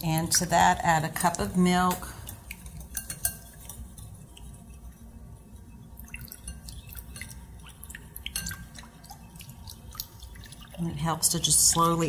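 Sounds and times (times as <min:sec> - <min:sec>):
liquid sloshing: 0:00.0 - 0:12.0
whisk ticking against glass bowl: 0:02.5 - 0:12.0.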